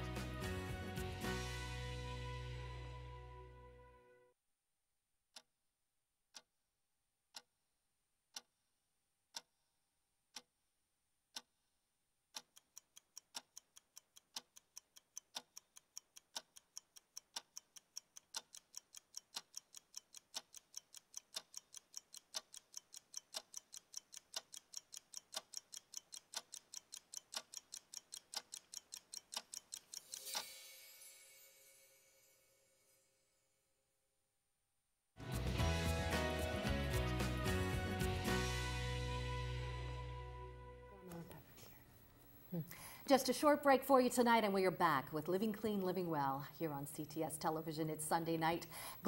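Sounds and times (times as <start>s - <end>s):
clock ticking: 7.3s - 7.5s, 8.3s - 8.6s, 9.3s - 9.6s, 10.3s - 10.5s, 11.3s - 11.6s, 12.3s - 30.5s, 42.7s - 49.0s.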